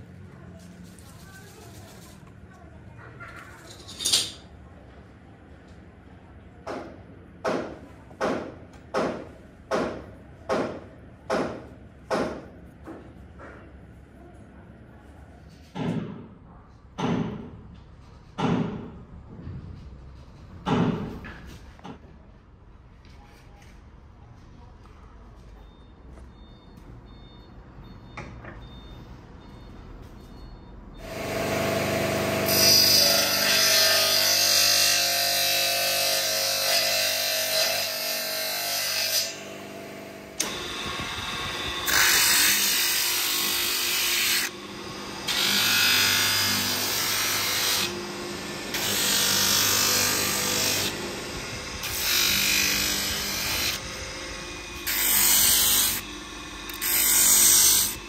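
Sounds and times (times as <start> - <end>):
disc sander grinding wood: 31.0 - 33.7.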